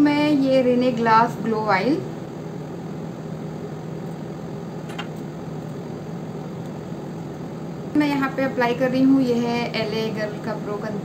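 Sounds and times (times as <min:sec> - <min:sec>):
background hum and hiss: 0:00.0 - 0:11.0.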